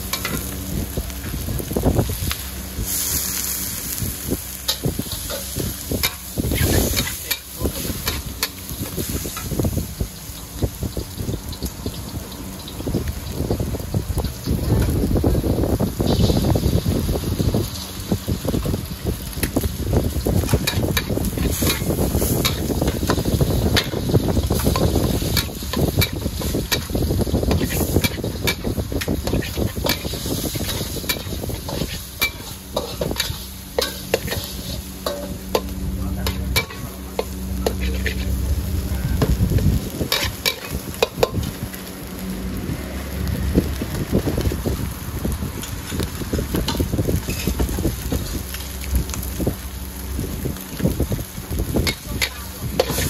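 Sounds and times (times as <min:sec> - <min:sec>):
food sizzling in wok: 0:00.0 - 0:53.0
spatula scraping metal pan: 0:27.5 - 0:35.7
low hum: 0:27.5 - 0:43.8.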